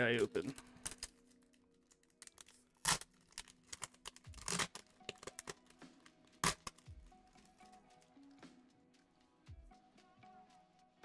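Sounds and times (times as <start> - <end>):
foil wrapper tearing and crinkling: 0.4 - 6.9.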